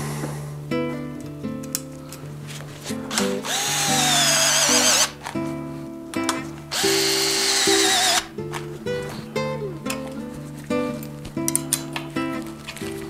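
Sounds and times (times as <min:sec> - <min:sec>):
background music: 0:00.0 - 0:13.0
pneumatic driver whining: 0:03.1 - 0:05.2, 0:06.7 - 0:08.3.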